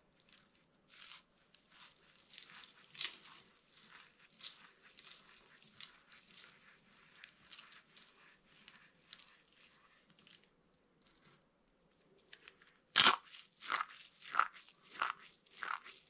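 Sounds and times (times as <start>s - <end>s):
soap curl breaking: 0.2s - 6.5s, 12.3s - 16.0s
dry soap crunching in hands: 0.2s - 11.4s, 12.9s - 16.0s.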